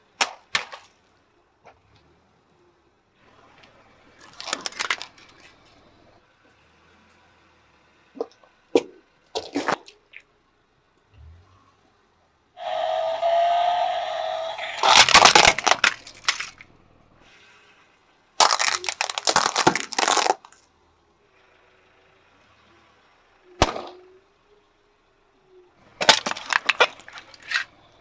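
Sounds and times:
objects crunching under tyre: 3.3 - 6.2, 14.3 - 17.2, 18.4 - 20.7, 25.8 - 28.0
hiss with rising squeal: 12.6 - 14.8.

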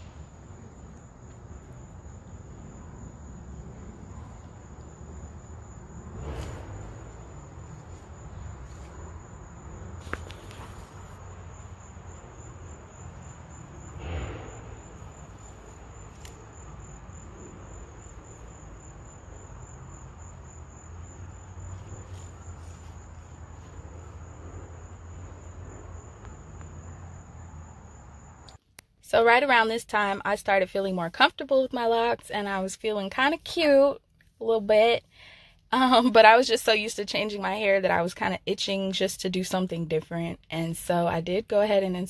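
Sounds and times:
insects trilling: 0.0 - 28.6.

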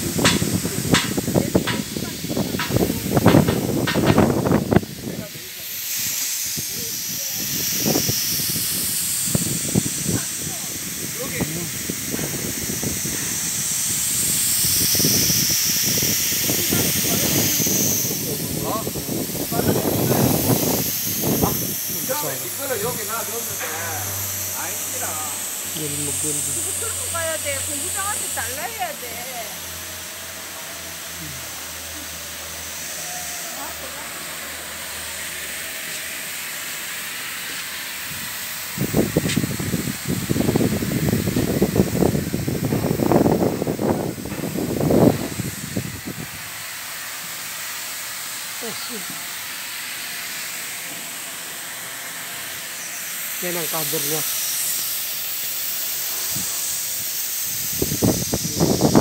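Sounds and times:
wind buffeting the microphone: 0.0 - 5.5, 6.4 - 23.1, 38.1 - 46.6, 57.5 - 59.0
high gas hiss: 0.0 - 59.0.

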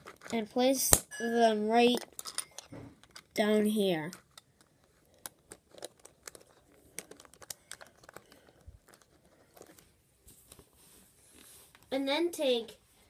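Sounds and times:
plastic bricks clicking and scraping: 0.0 - 0.4, 1.9 - 9.8.

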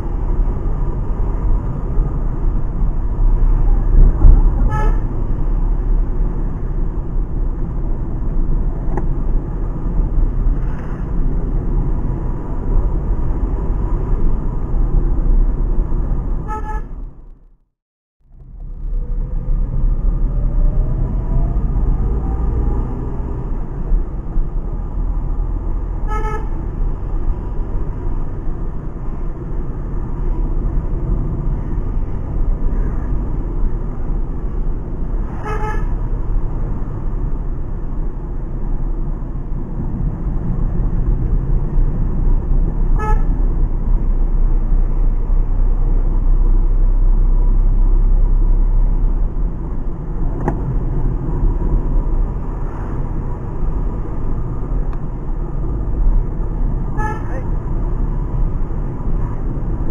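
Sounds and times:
car cabin engine rumble: 0.0 - 17.5, 26.4 - 59.9
tyre noise on road: 0.0 - 17.6, 18.2 - 59.9
car horn toots: 4.6 - 5.1, 16.4 - 17.0, 26.0 - 26.6, 35.4 - 35.9, 43.0 - 43.3, 57.0 - 57.4.

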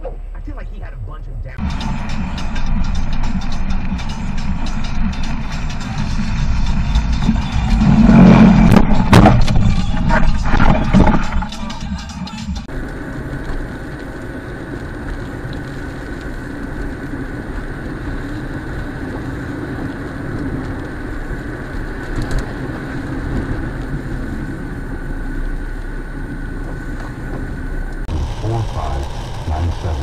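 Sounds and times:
thin steady whine: 0.0 - 11.5, 22.9 - 30.0
car engine and tyre noise: 0.0 - 30.0.

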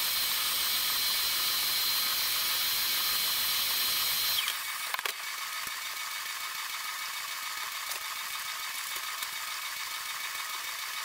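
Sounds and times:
vacuum cleaner running: 0.0 - 4.8.

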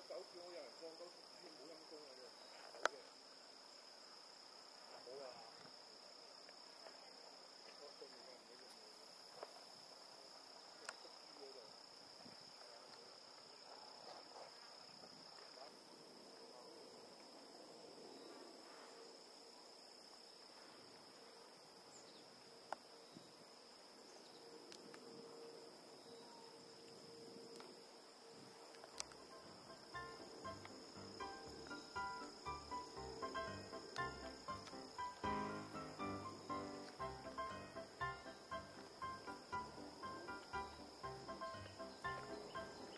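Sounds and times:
insects droning: 0.0 - 42.9.

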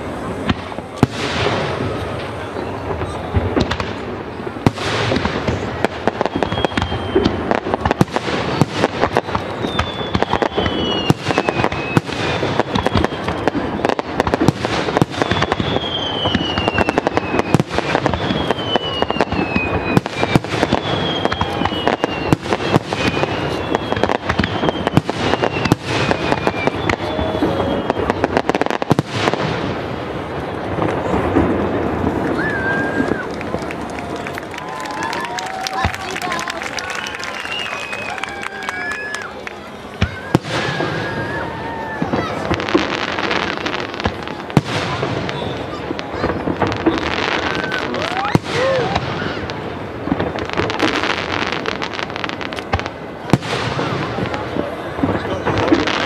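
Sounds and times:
fireworks bursting and crackling: 0.0 - 56.0
falling whistling tones: 6.2 - 8.1, 9.0 - 14.1, 15.0 - 28.3, 36.7 - 39.4.

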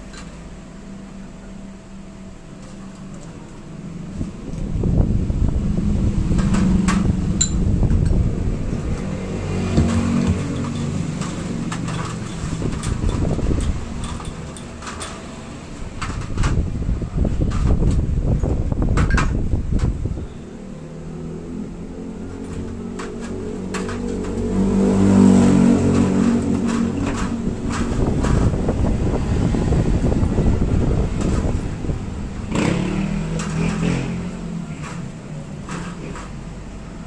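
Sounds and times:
low mechanical rumble: 0.0 - 37.0
metal parts clinking in trays: 10.4 - 15.3.

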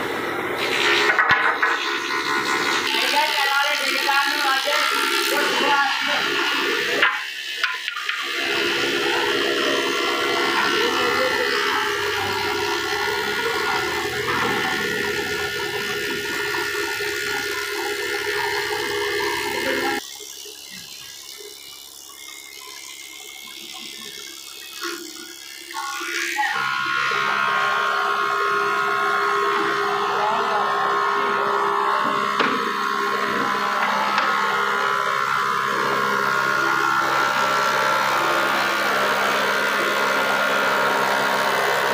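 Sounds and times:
thickness planer humming: 0.0 - 41.9.

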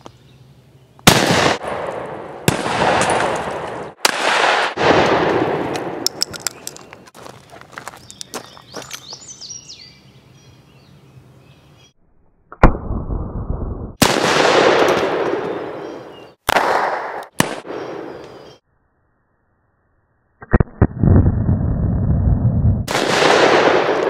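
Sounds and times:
revolver gunshots echoing: 1.1 - 6.1, 14.0 - 18.2, 22.9 - 24.0.

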